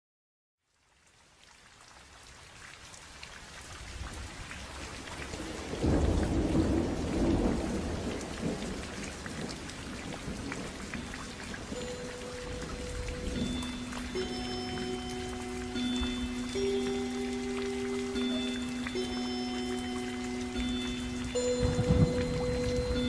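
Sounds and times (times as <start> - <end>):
rain patter: 0.6 - 23.0
thunder rolling: 21.4 - 23.0.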